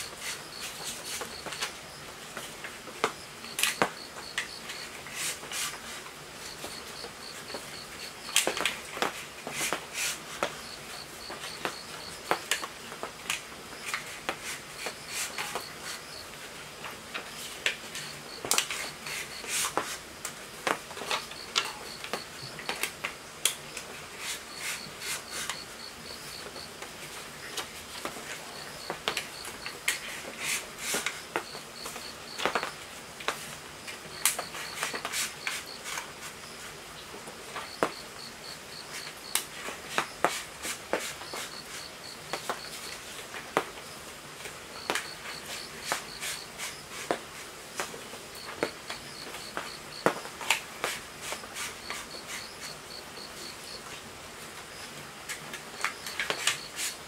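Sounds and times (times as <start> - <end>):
insect chirping trills: 0.0 - 2.0, 3.0 - 5.3, 6.4 - 8.6, 10.5 - 12.8, 13.8 - 16.4, 17.3 - 19.8, 20.9 - 22.8, 23.7 - 26.8, 27.4 - 30.1, 31.1 - 32.9, 37.6 - 39.4, 41.2 - 43.0, 44.8 - 46.8, 48.4 - 50.2, 51.3 - 53.8.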